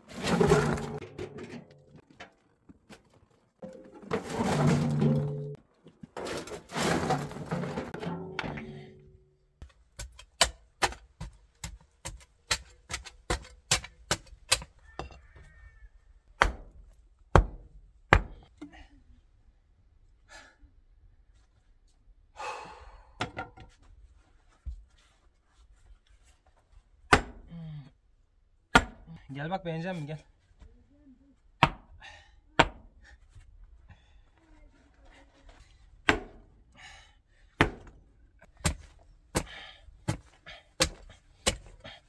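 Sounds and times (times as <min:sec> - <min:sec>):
stone scraping: 0:00.0 - 0:01.8.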